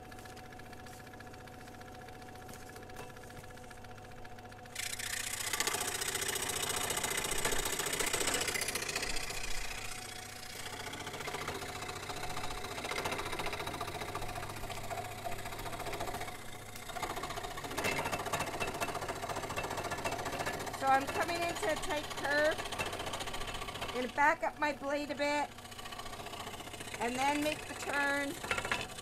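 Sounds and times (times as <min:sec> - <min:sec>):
motor hum: 0:00.0 - 0:29.0
scroll saw cutting wood: 0:04.7 - 0:29.0.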